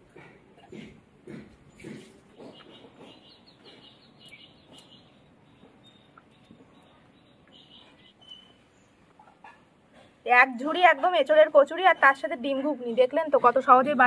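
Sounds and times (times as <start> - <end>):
faint bird chirps: 2.5 - 9.6.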